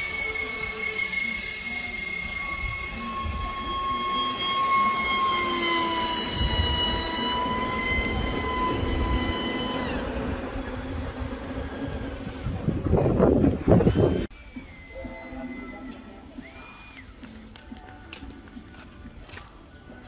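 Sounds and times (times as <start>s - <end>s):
model airplane motor whining: 0.0s - 10.6s.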